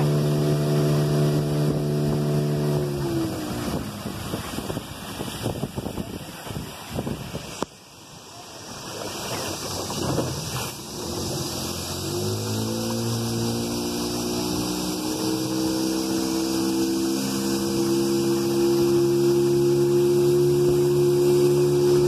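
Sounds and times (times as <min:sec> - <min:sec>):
motorboat engine running: 0:00.0 - 0:07.6, 0:08.6 - 0:22.0
rushing water: 0:00.0 - 0:22.0
wind noise: 0:01.5 - 0:07.7.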